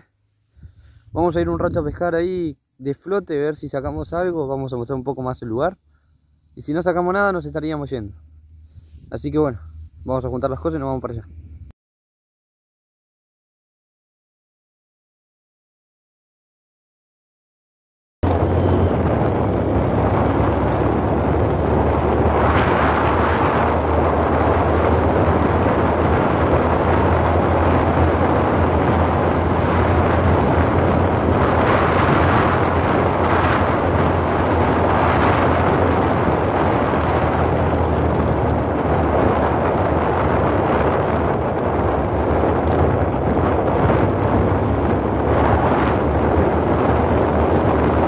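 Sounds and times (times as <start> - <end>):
steady low rumble: 0.0 - 11.7, 18.2 - 48.0
wind buffeting microphone: 18.2 - 48.0.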